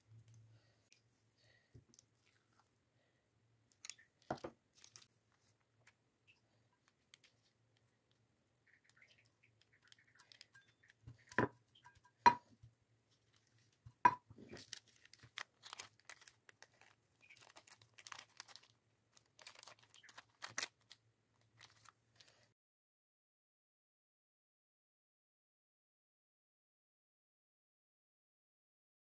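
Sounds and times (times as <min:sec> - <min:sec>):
plastic sheet crinkling: 0:03.8 - 0:05.5, 0:14.3 - 0:22.4.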